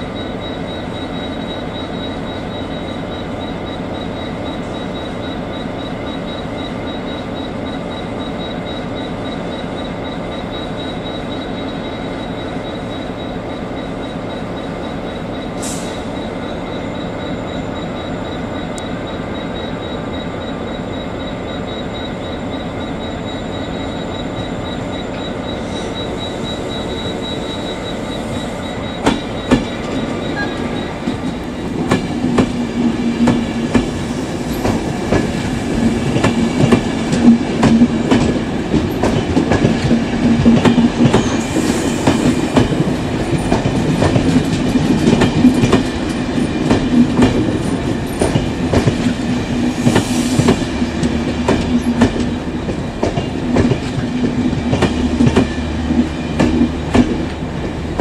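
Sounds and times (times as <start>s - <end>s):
train wheels clicking over rail joints: 28.3s - 58.0s.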